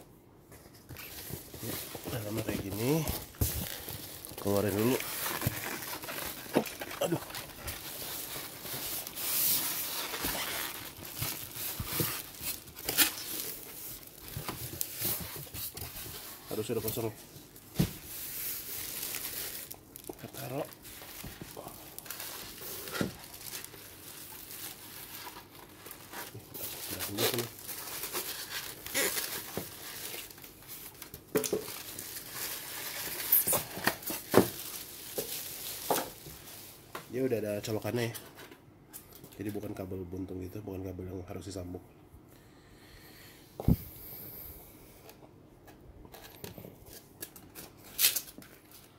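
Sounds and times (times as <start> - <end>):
plastic and styrofoam rustling: 0.7 - 38.1
packing scraping against cardboard: 0.9 - 17.1
plastic bag crinkling: 1.5 - 15.8, 18.1 - 36.7.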